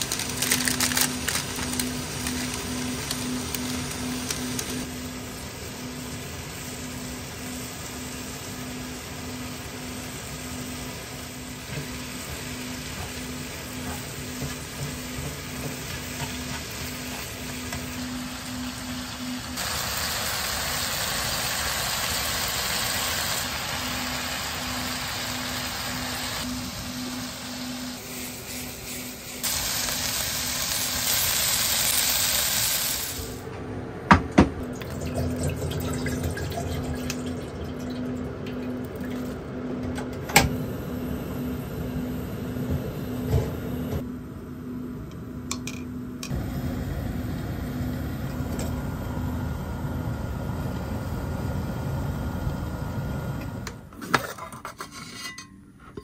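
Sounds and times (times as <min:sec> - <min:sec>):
stir-fry sizzling in frying pan: 0:00.0 - 0:33.4
gas stove burner hissing: 0:00.0 - 0:33.5, 0:40.2 - 0:44.0, 0:45.1 - 0:53.9.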